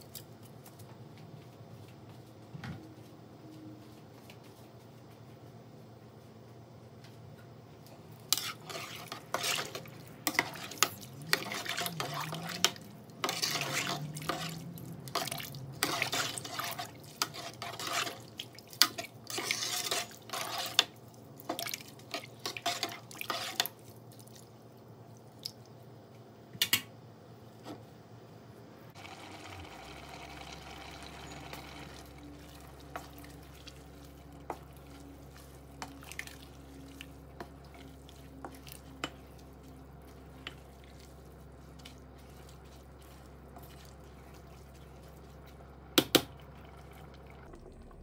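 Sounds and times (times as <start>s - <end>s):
liquid sloshing in a pot: 8.1s - 24.5s, 31.9s - 48.0s.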